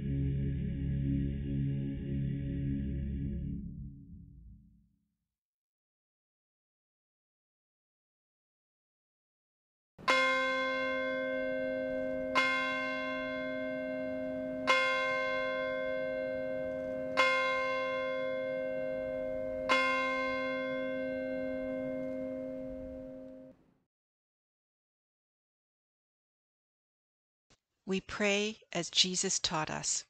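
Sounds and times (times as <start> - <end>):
church bell tolling: 10.0 - 23.6.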